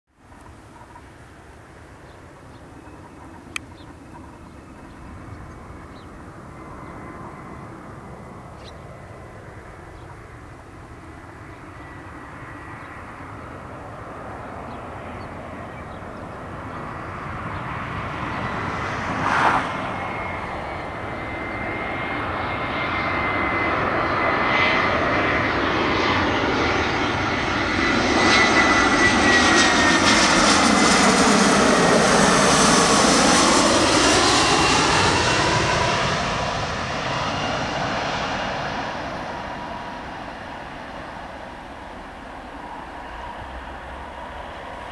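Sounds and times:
high engine whine: 0.2 - 44.9
jet engines on approach: 0.2 - 44.9
brief rush of noise: 19.2 - 19.8.

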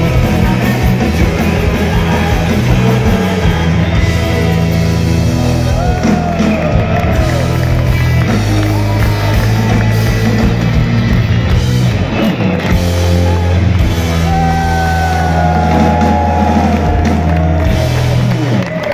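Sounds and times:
person singing: 0.0 - 4.9
drums: 0.0 - 18.9
electric bass: 0.0 - 18.9
guitars: 0.0 - 18.9.

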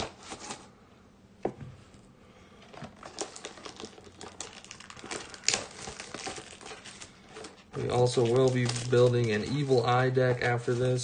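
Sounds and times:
cardboard and wrapping crinkling: 2.6 - 11.0.

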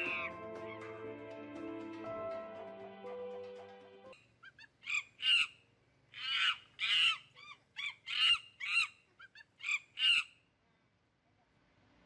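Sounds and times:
baboon screaming: 6.2 - 7.2.

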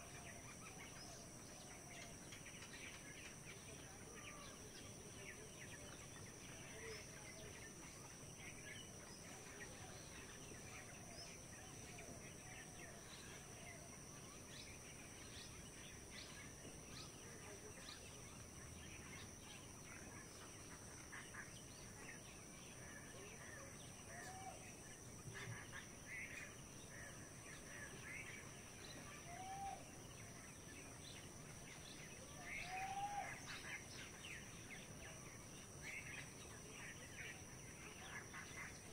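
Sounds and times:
rising-then-falling bird calls: 29.0 - 30.0, 32.3 - 33.9.

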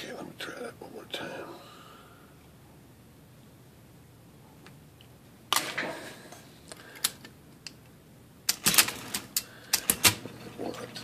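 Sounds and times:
typewriter clacking: 8.5 - 10.2.

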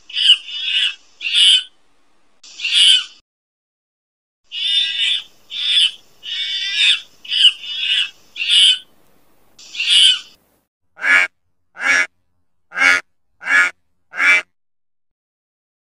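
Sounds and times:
lemurs harsh high-pitched calls: 0.0 - 1.7, 2.4 - 3.2, 4.5 - 8.9, 9.6 - 10.4.

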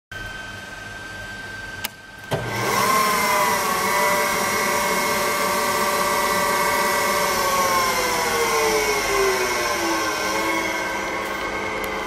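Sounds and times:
grinder spindle whine: 2.4 - 12.0.

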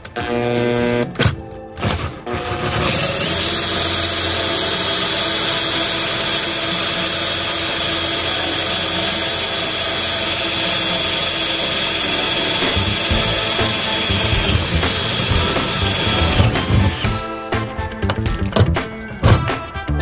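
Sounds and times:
power drill boring through metal: 1.8 - 17.3.

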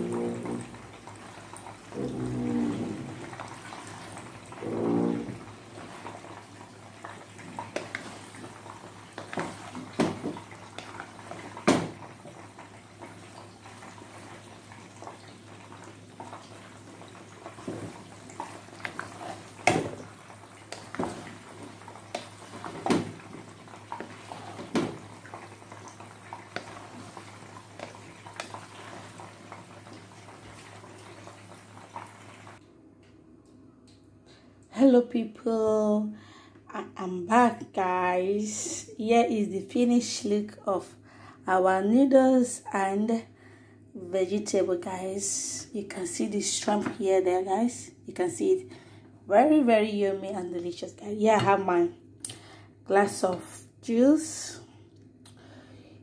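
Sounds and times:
wooden spatula scraping a pot: 0.0 - 0.8, 1.9 - 6.4, 7.0 - 10.0, 17.4 - 20.1, 20.7 - 25.4.

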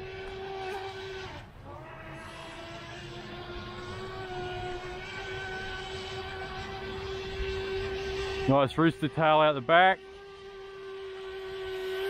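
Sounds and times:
electric motor high whine: 0.0 - 12.0.

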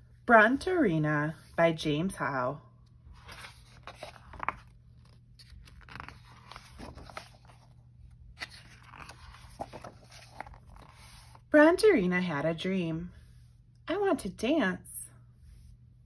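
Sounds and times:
paper pages rustling: 3.0 - 11.5.

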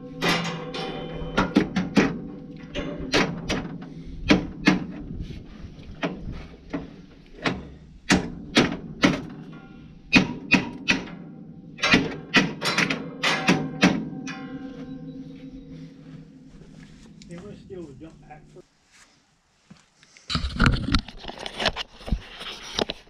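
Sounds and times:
hammer striking metal: 0.0 - 4.9, 8.1 - 16.3.

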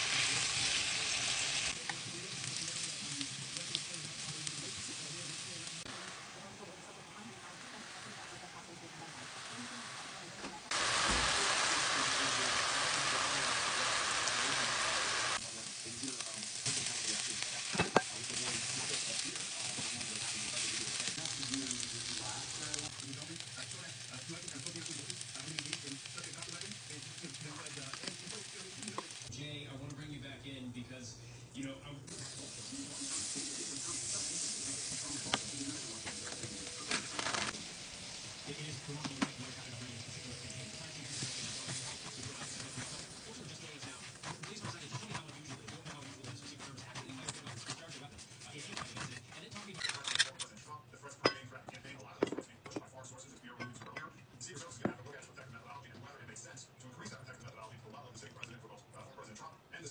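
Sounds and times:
chicken sizzling in a frying pan: 0.0 - 29.3, 32.1 - 49.1.

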